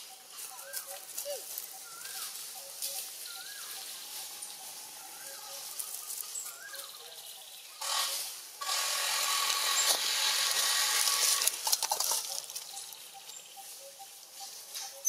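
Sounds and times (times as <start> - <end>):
dry leaves rustling and crackling: 0.0 - 15.0.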